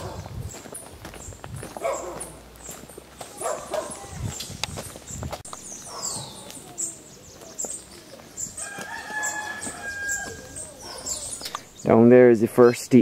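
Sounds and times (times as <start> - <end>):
footsteps on gravel: 0.0 - 11.6
small birds chirping: 0.0 - 13.0
rooster crowing: 8.6 - 11.2.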